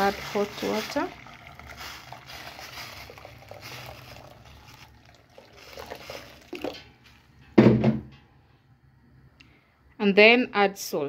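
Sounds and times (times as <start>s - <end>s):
water pouring into metal pot: 0.0s - 7.0s
sudden loud knock: 7.6s - 8.1s.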